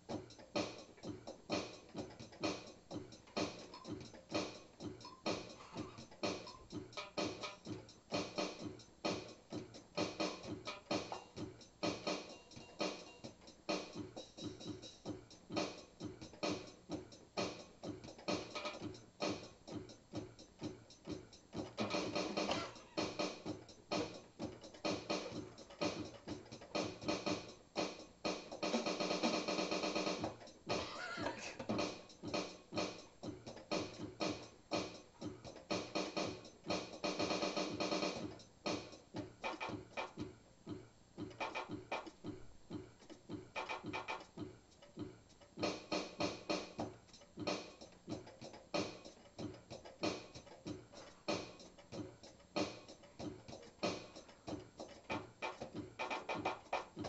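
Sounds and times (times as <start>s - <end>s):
electronic keyboard playing: 0.0s - 40.4s.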